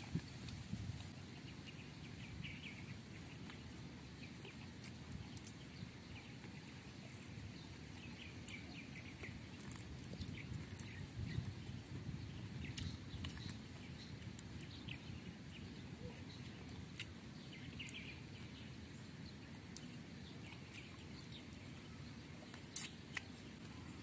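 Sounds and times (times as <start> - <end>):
mouth clicks and smacks: 22.6 - 23.3
person chewing and sucking: 22.7 - 23.3.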